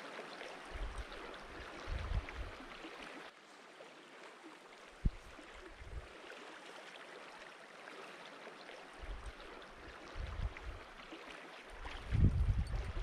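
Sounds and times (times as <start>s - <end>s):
river flowing over gravel: 0.0s - 13.0s
wind rumble on microphone: 0.6s - 2.7s, 5.0s - 6.1s, 9.0s - 9.4s, 10.0s - 10.9s, 11.8s - 13.0s.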